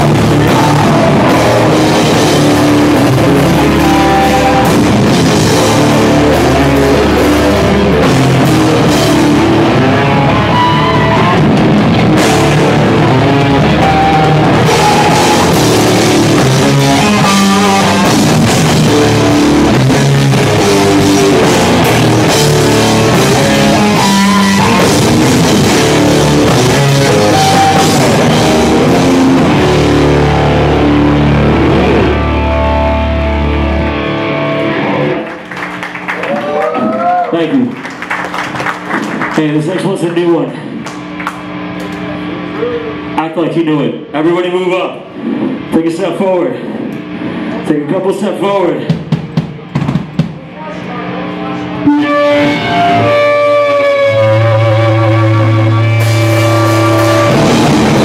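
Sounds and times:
bass guitar: 0.0 - 58.0
distorted electric guitar: 0.0 - 58.0
drum kit with cymbals: 11.1 - 30.3, 54.2 - 58.0.

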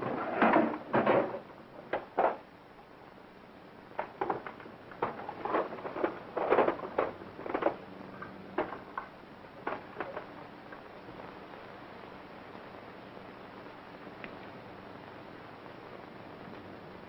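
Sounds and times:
film soundtrack hiss: 0.0 - 17.0
objects rummaged in a box: 4.2 - 7.8.

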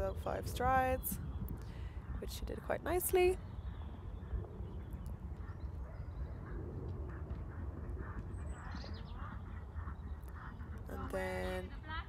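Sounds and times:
steady low rumble: 0.0 - 12.0
horse hoofbeats cantering: 3.6 - 12.0.

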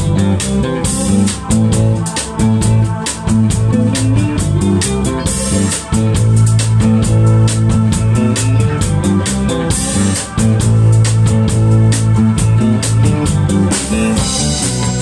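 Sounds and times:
hammond organ: 0.0 - 15.0
instrumental rock band playing: 0.0 - 15.0.

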